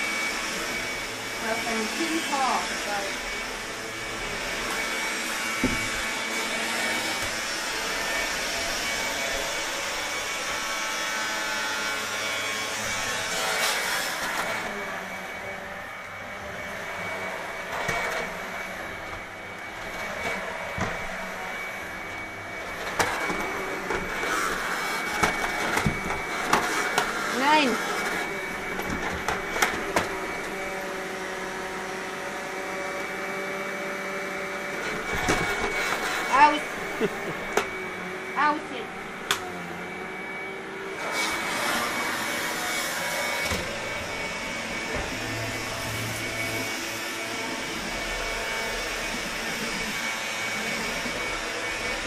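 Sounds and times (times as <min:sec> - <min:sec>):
vacuum cleaner running: 0:00.0 - 0:52.0.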